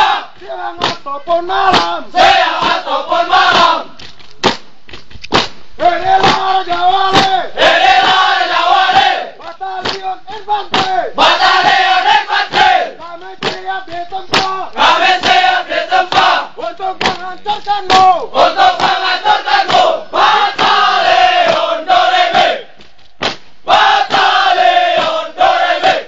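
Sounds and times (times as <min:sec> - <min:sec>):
soldiers chanting in unison: 0:00.0 - 0:04.0, 0:05.8 - 0:22.8, 0:23.6 - 0:26.0
rhythmic hand claps: 0:00.0 - 0:26.0.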